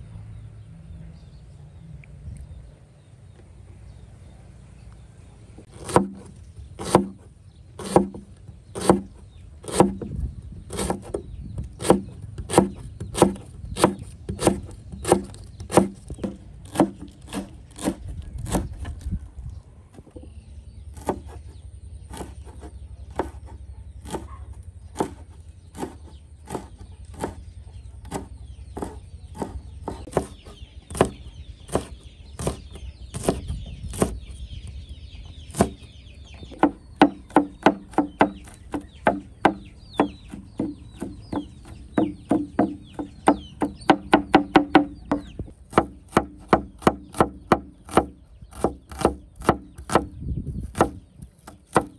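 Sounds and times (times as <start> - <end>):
knife chopping on wooden board: 5.7 - 7.2, 7.8 - 8.2, 8.8 - 10.1, 10.7 - 11.2, 11.8 - 18.7, 21.0 - 21.4, 22.1 - 24.3, 25.0 - 27.4, 28.0 - 34.2, 36.6 - 50.1, 50.7 - 51.9.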